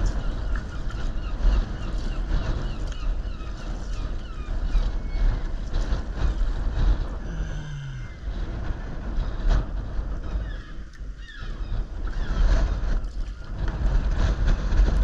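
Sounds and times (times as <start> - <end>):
water lapping against kayak hull: 0.0 - 11.2
wind buffeting microphone: 0.0 - 15.0
low tone falling in pitch: 7.2 - 8.3.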